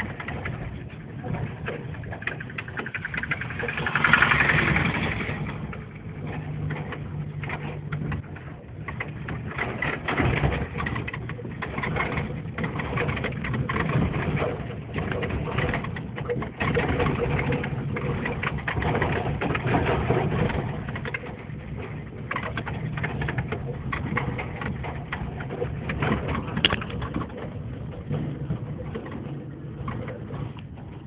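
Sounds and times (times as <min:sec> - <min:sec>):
car engine running: 0:00.0 - 0:31.0
car knocks and jolts: 0:00.0 - 0:31.0.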